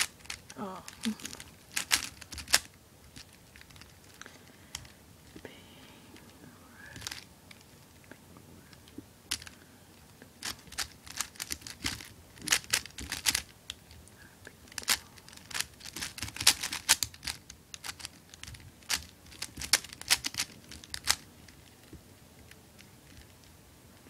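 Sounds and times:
plastic puzzle clicking: 0:00.0 - 0:04.9, 0:07.0 - 0:07.6, 0:08.8 - 0:09.6, 0:10.4 - 0:13.9, 0:14.7 - 0:21.6.

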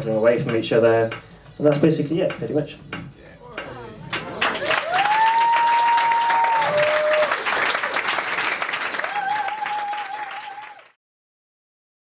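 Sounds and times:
audience applauding: 0:03.7 - 0:11.0
person cheering high held notes: 0:04.6 - 0:07.4, 0:09.0 - 0:10.9.

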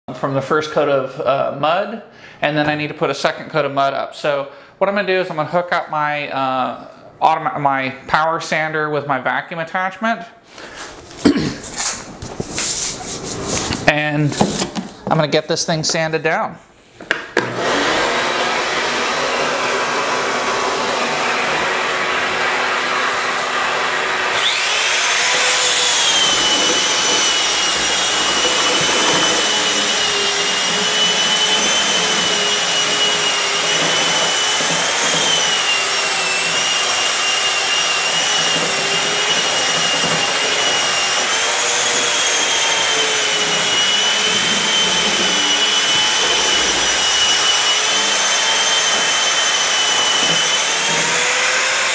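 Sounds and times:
power sander running: 0:17.4 - 0:51.9
high motor whine: 0:41.8 - 0:51.4.

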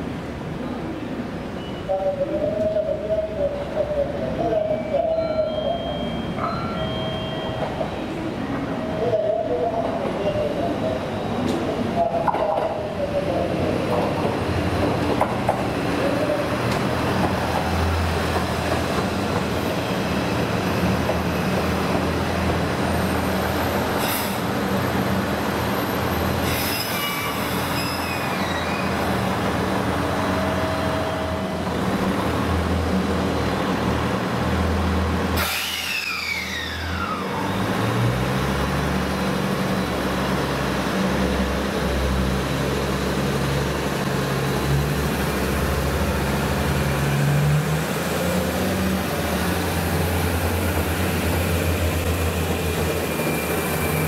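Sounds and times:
diesel train engine drone: 0:00.0 - 0:54.0
train wheels squealing: 0:04.6 - 0:08.1, 0:25.4 - 0:29.1, 0:35.4 - 0:37.5, 0:52.8 - 0:54.0.

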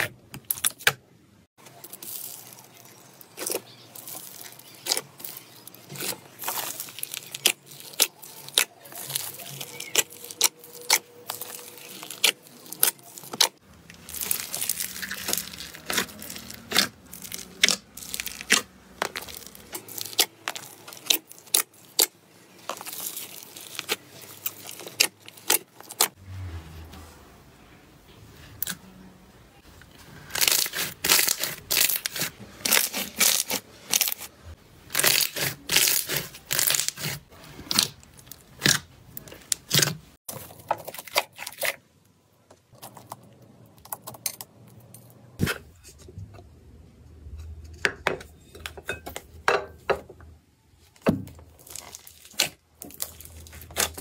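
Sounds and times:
slime crackling and popping: 0:01.8 - 0:26.1, 0:30.3 - 0:34.2, 0:34.9 - 0:39.9, 0:51.6 - 0:54.0.

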